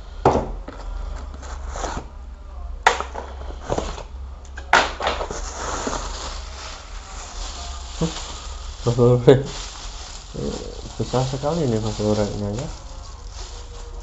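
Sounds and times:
plastic packaging crinkling: 5.0 - 14.0.

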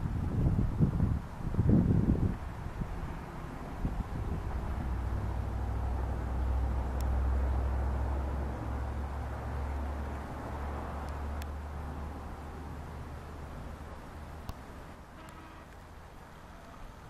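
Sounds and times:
diesel locomotive rumble: 0.0 - 17.0.

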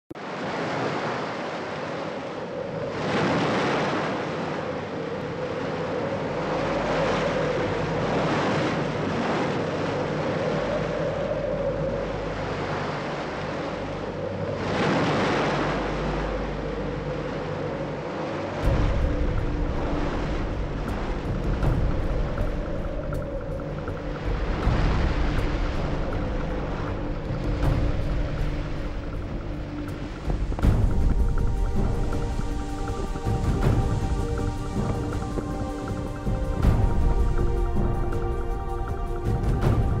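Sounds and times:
waves surging and breaking: 0.1 - 40.0
wind: 0.1 - 40.0
steady wavering tone: 4.0 - 40.0
deep low rumble: 18.6 - 40.0.

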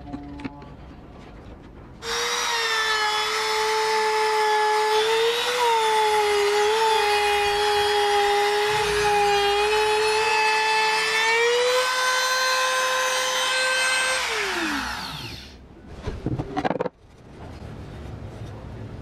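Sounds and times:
router whining through wood: 2.0 - 15.6.

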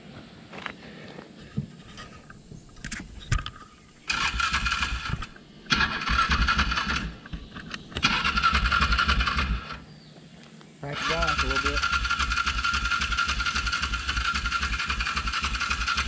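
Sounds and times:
utility vehicle engine revving: 4.1 - 9.9, 11.0 - 16.0.

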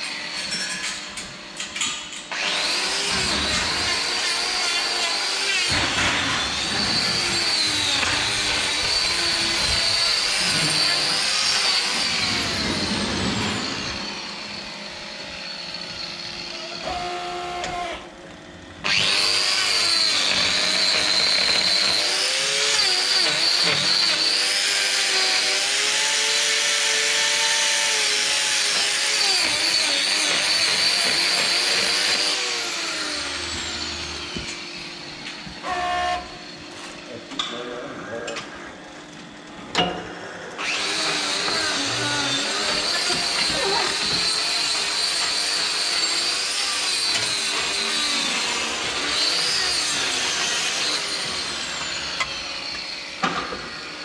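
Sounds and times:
angle grinder cutting hoof: 0.0 - 18.2, 18.8 - 54.0.

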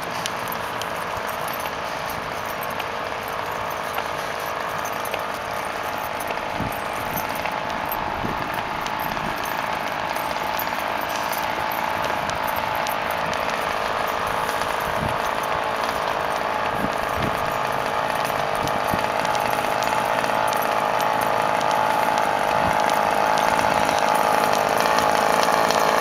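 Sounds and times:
small engine buzzing drone: 0.0 - 26.0.

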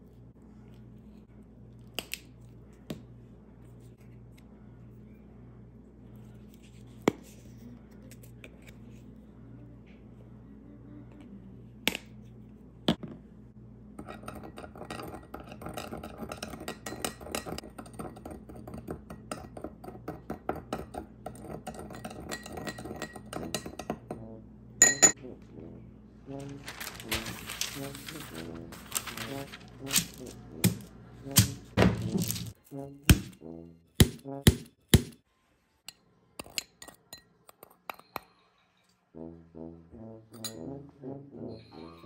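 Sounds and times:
spoon clinking in glass bowl: 14.0 - 24.1, 24.8 - 25.2.

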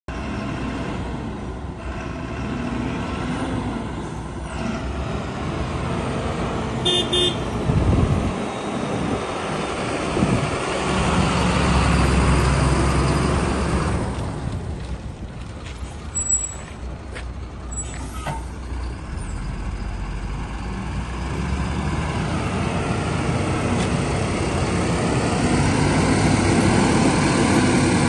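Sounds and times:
diesel truck engine passing: 0.1 - 28.0
truck horn toots: 6.8 - 7.5.

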